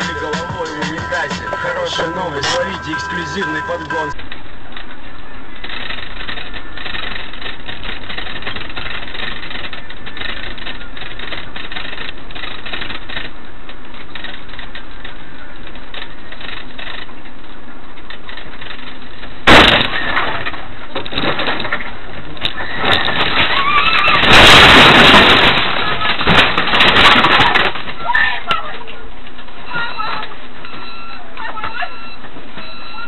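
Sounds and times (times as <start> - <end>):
vehicle collision crash: 0.0 - 4.9, 19.4 - 28.9
vehicle road noise: 0.0 - 33.0.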